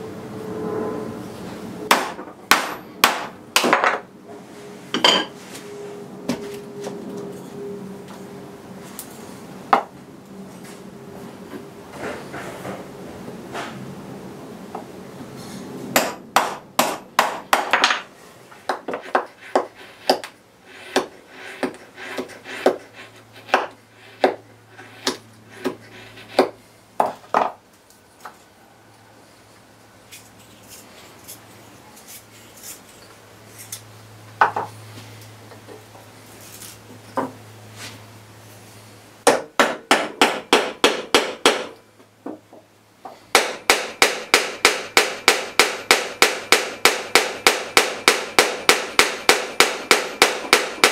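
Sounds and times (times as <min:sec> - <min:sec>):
low hum: 0:00.0 - 0:01.9.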